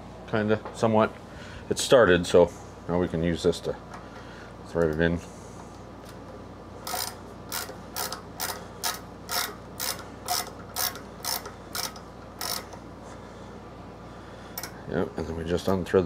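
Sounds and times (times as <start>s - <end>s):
ratcheting tap wrench clicking: 6.8s - 12.8s.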